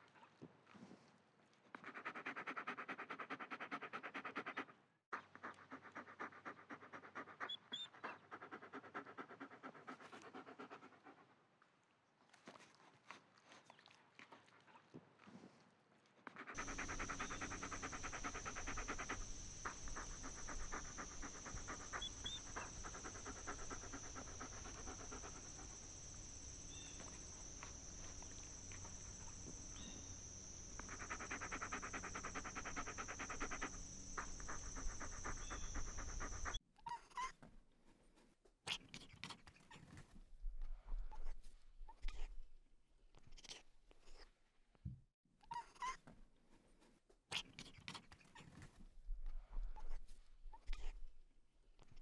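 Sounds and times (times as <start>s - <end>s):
dog panting: 1.8s - 11.3s, 16.3s - 36.6s
dog chewing bone: 16.4s - 36.6s.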